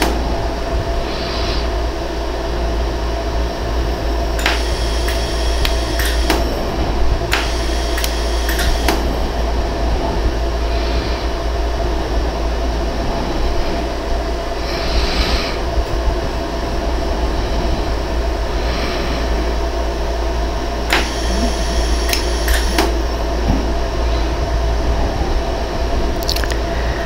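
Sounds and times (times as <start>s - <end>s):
laser welder machine hum: 0.0s - 1.2s, 2.0s - 10.6s, 20.0s - 24.2s
sharp clicks: 4.4s - 6.5s, 7.3s - 9.1s, 20.9s - 23.0s.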